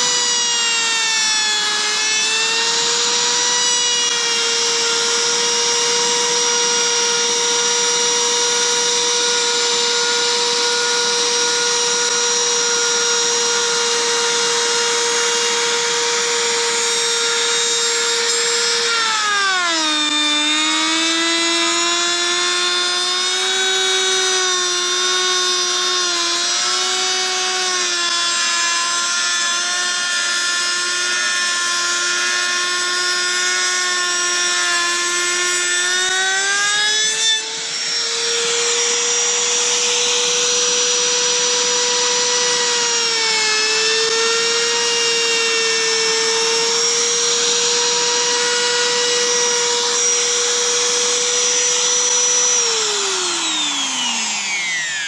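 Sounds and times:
router motor whine: 0:00.0 - 0:55.0.

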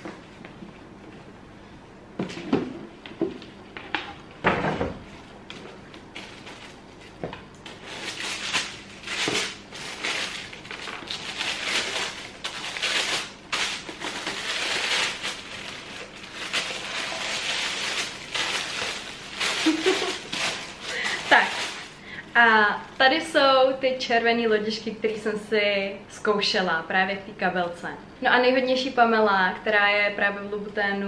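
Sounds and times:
tissue paper rustling and crinkling: 0:06.1 - 0:22.0.

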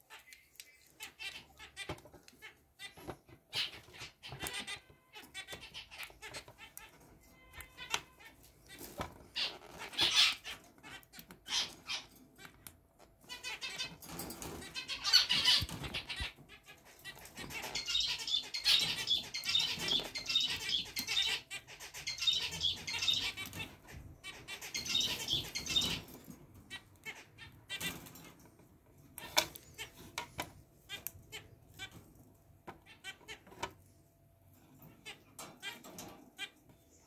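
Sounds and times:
finches chirping and singing: 0:13.3 - 0:27.8.

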